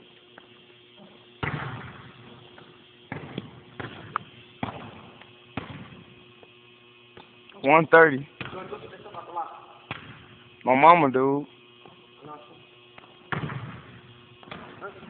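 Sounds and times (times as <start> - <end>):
basketball bouncing on gym floor: 1.0 - 6.2, 8.4 - 9.2, 9.9 - 10.4, 13.0 - 15.0.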